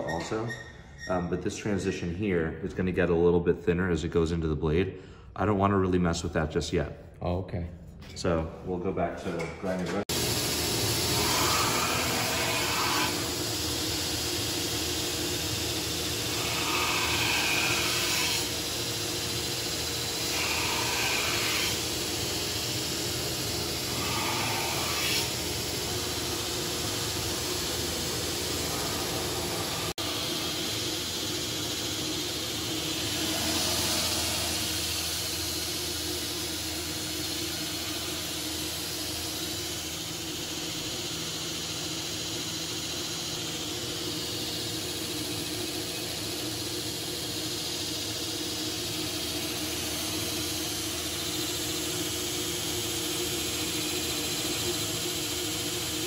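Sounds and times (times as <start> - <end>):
belt grinder motor running: 10.1 - 56.0
metal grinding hiss on belt: 16.2 - 22.7, 23.8 - 36.5.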